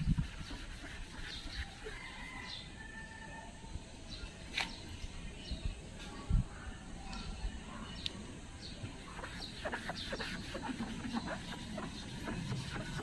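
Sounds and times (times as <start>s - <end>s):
foam pad rubbing on glass: 0.0s - 2.3s, 9.0s - 13.0s.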